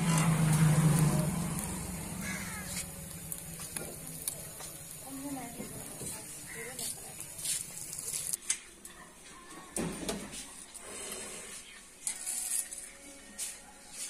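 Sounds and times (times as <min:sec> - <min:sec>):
pork sizzling over charcoal: 0:00.0 - 0:08.6, 0:10.8 - 0:12.9.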